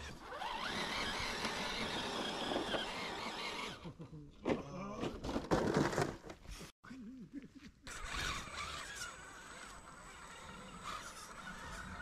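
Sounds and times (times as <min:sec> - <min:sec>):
electric motor and gearbox whining: 0:00.0 - 0:03.8
knocks and scrapes on rock: 0:04.4 - 0:06.5.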